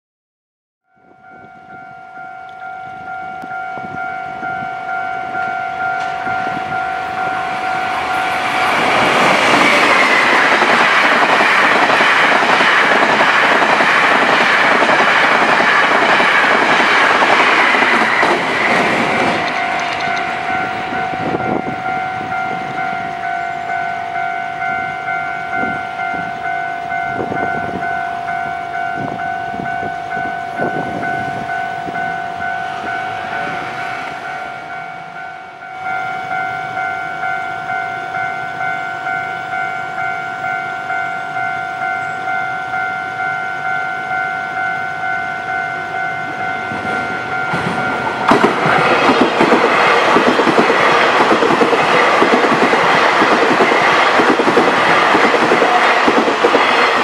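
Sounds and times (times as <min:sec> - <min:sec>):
level crossing bell ringing: 0:00.9 - 0:09.4, 0:19.2 - 0:49.0
train passing: 0:00.9 - 0:57.0.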